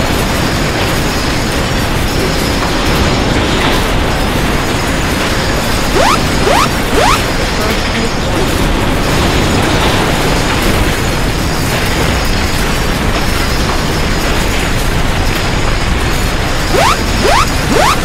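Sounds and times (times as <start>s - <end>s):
alarm rising tones: 5.9s - 7.3s, 16.7s - 18.0s.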